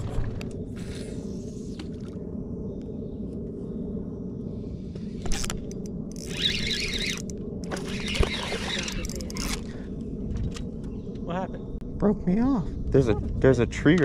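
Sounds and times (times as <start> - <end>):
fishing reel drag rasping: 6.1 - 9.6.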